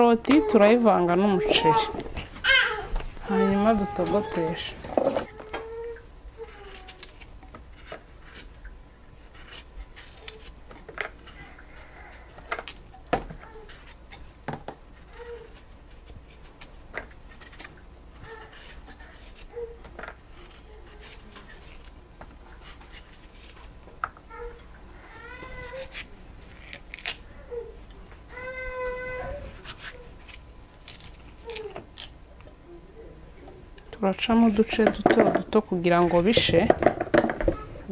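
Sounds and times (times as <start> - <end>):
knife scraping a vegetable: 6.4 - 8.6, 9.2 - 12.8, 13.4 - 14.2, 15.0 - 22.0, 22.6 - 23.8, 25.4 - 27.2, 29.2 - 32.1.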